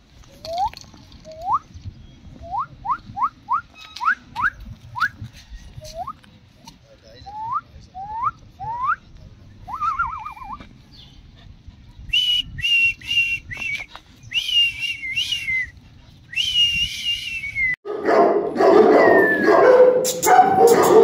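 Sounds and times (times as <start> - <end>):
short rising whistles: 12.1 - 17.8.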